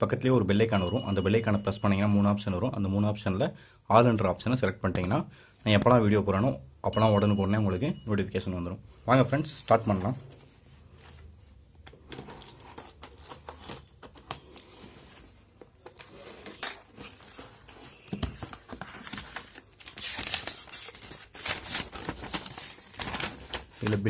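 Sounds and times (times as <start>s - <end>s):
paper crinkling: 11.9s - 24.0s
tape tearing and cardboard rustling: 12.1s - 23.9s.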